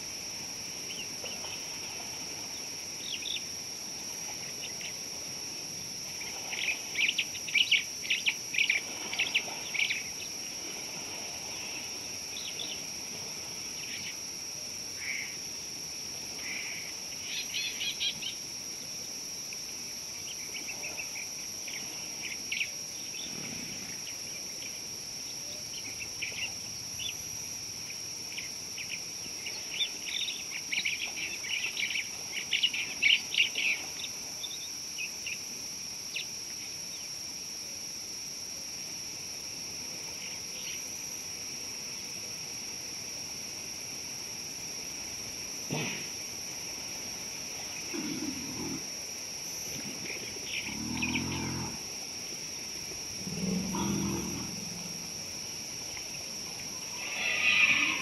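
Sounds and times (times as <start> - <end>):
high-pitched insect drone: 56.6 - 58.0.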